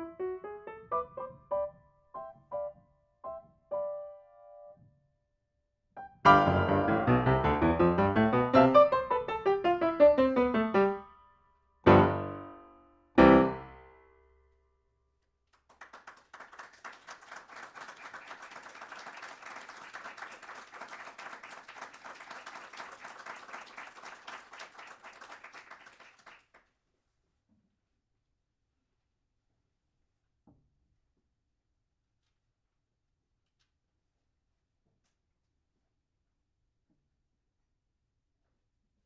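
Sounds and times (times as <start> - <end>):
grand piano playing: 0.0 - 4.8, 6.0 - 11.2, 11.8 - 13.8
audience applauding: 15.6 - 26.6.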